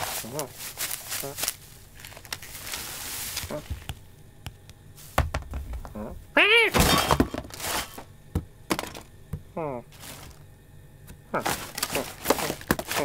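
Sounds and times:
bag rustling: 0.0s - 3.8s, 6.9s - 8.1s, 9.9s - 10.4s, 11.4s - 13.0s
knocks and thuds of falling items: 5.1s - 10.4s, 11.1s - 13.0s
cartoon cat cry: 6.4s - 6.8s
loud crash of spilling items: 6.7s - 8.1s.

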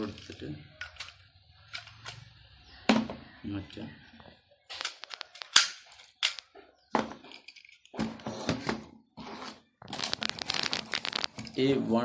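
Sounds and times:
plastic parts clattering on table: 4.7s - 8.8s.

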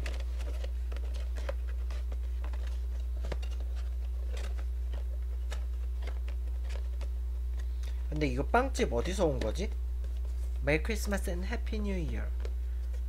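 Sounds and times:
cardboard box rustling and crinkling: 0.0s - 7.1s
low electrical hum: 0.0s - 13.0s.

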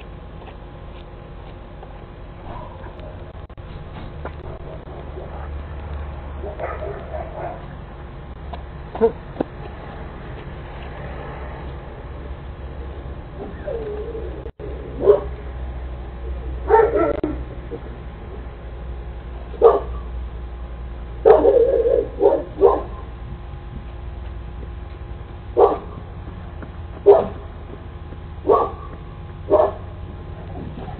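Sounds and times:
dog barking deeply: 6.4s - 7.7s, 15.0s - 15.4s, 16.6s - 17.5s, 19.6s - 20.1s, 21.2s - 23.2s, 25.6s - 26.0s, 27.0s - 27.5s, 28.4s - 28.9s, 29.5s - 29.9s.

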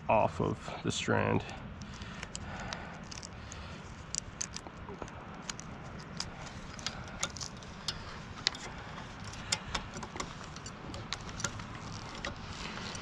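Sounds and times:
low background hum: 0.0s - 13.0s
cable clicking against hardware: 1.4s - 13.0s.

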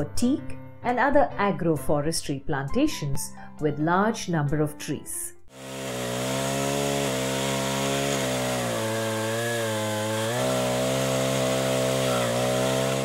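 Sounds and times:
chain sawing into branch: 5.5s - 13.0s
pole saw engine running: 5.5s - 13.0s.

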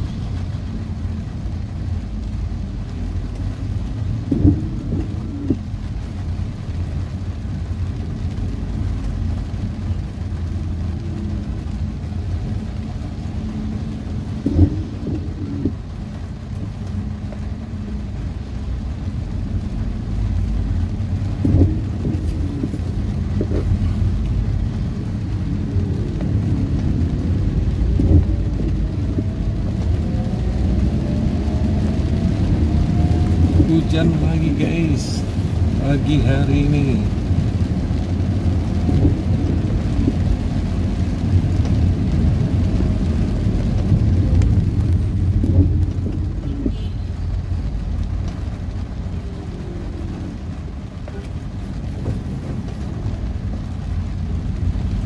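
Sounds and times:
rain on a car: 0.0s - 55.0s
tyres and engine rumble: 0.0s - 55.0s.

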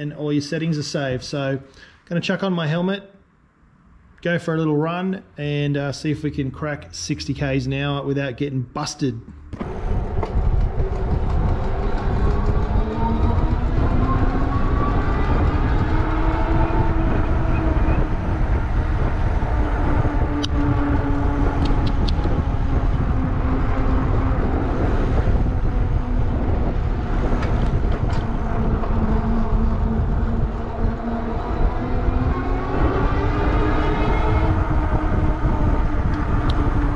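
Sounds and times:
tyre road noise: 9.3s - 36.9s
wind rumble on microphone: 9.4s - 36.9s
electric motor whine: 9.6s - 36.9s.

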